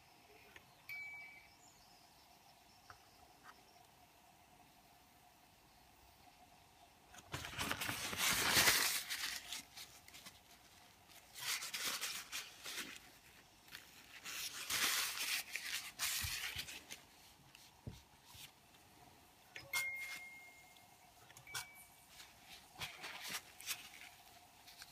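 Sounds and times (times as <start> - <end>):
paper tissue rubbing and crinkling: 7.3 - 18.6, 22.0 - 24.9.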